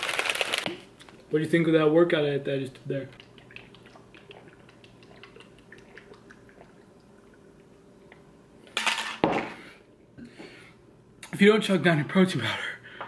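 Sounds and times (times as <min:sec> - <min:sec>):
wet swallowing clicks: 0:03.1 - 0:06.9.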